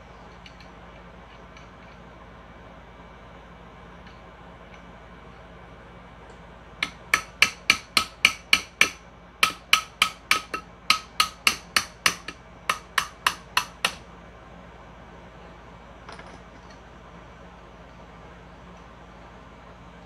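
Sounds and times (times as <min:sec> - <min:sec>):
hammer striking metal: 0:06.8 - 0:14.0.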